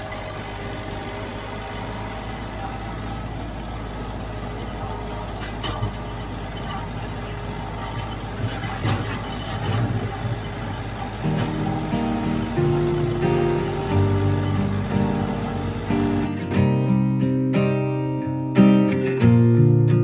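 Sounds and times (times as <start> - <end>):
diesel tractor running: 0.0 - 20.0
knocks and clatters: 2.6 - 16.4
music: 11.2 - 20.0.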